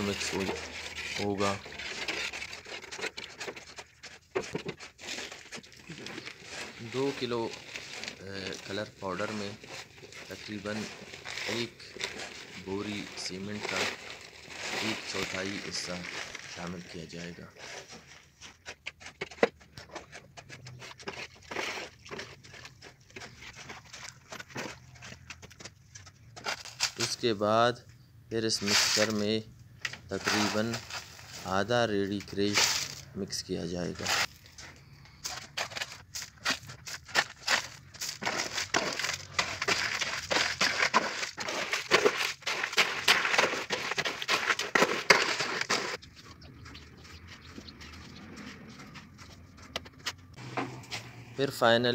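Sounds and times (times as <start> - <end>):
shovel scraping in metal pan: 0.0 - 16.7, 28.5 - 29.3, 30.0 - 31.6, 32.2 - 33.1, 33.9 - 34.4, 35.2 - 46.0.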